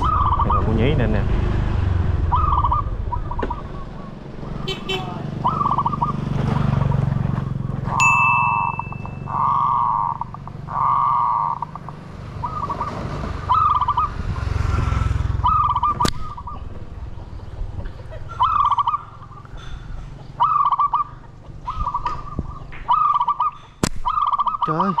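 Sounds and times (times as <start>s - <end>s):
pigeons calling: 0.0s - 25.0s
sharp snap: 16.0s - 16.2s, 23.8s - 24.1s
wind rumble on microphone: 21.6s - 22.8s.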